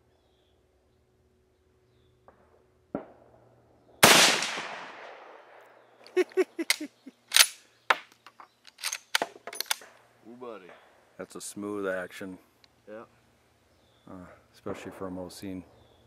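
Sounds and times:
rifle shot: 4.0 - 5.6.

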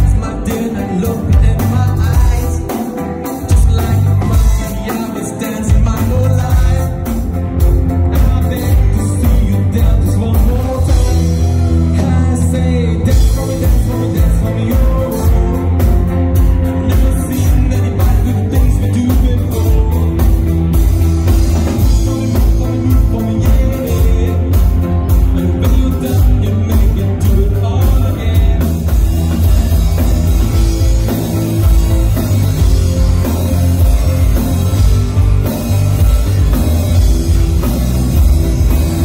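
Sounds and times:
lead vocal singing: 0.0 - 30.7
bass guitar: 0.0 - 39.0
drum kit steady beat: 0.0 - 39.0
electric guitar: 0.0 - 39.0
keyboard: 0.0 - 39.0.

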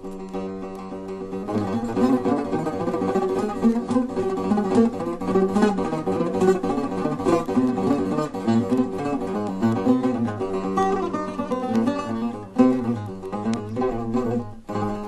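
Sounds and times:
plucked lute improvisation: 0.0 - 15.0.

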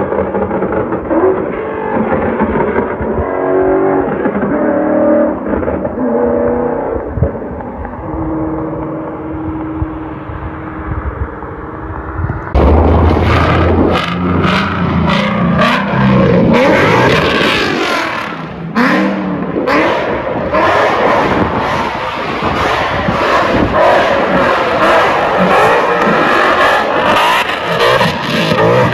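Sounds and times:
exhaust pops: 0.0 - 6.0
car exhaust drone: 0.0 - 28.9
engine revving: 0.0 - 28.9.

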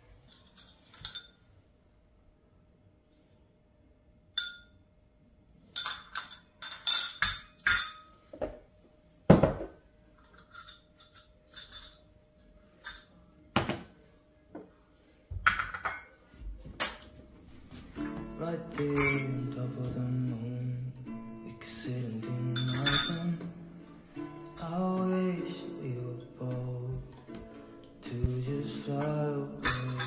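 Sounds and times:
dishes and cutlery clinking: 0.0 - 1.5, 4.4 - 4.8, 5.6 - 8.6, 9.3 - 14.0, 15.3 - 17.2, 17.8 - 20.1, 22.5 - 30.0.

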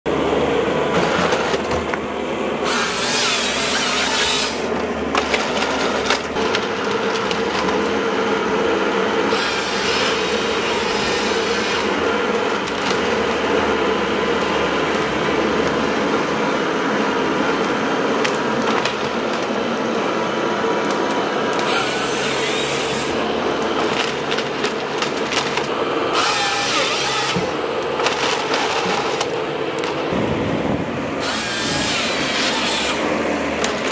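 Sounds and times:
diesel engine and hydraulics running: 0.1 - 33.9
chainsaw cutting through stems: 2.6 - 4.8, 21.5 - 30.1, 31.2 - 33.9.

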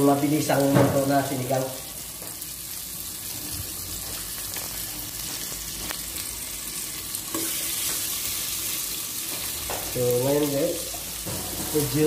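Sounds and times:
onions and tomatoes sizzling: 0.0 - 12.0.

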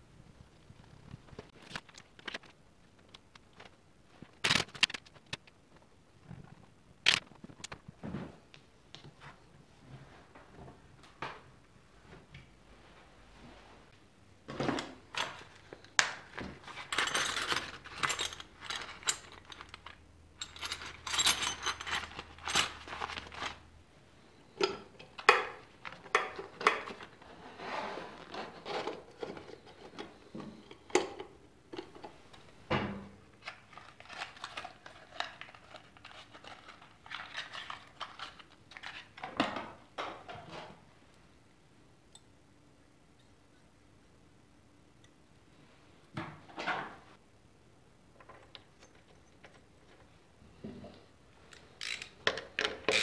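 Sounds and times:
small parts clicking and clinking: 15.1 - 23.6, 33.4 - 39.2, 51.5 - 53.0
plastic bags crinkling: 20.6 - 23.7.

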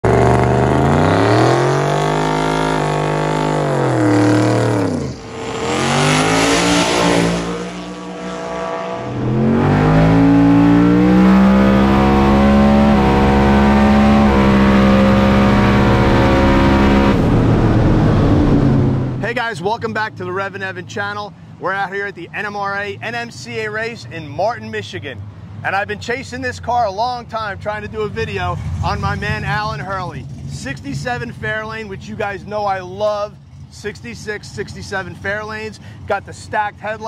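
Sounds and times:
car launching with loud rush: 0.0 - 19.3
car engine revving: 0.0 - 19.4.

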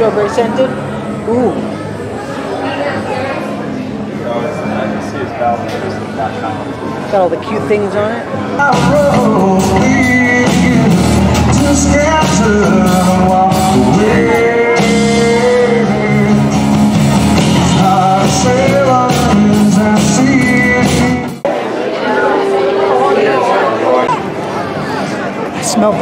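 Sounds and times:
acoustic guitar: 0.0 - 26.0
man singing: 8.5 - 21.4
drum kit: 8.6 - 21.4.

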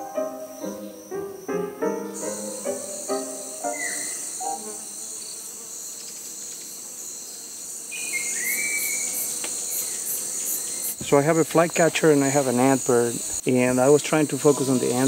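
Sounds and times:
piano music: 0.0 - 5.0
insect chorus buzzing: 0.0 - 15.0
birds whistling: 1.9 - 4.8, 8.0 - 9.2.

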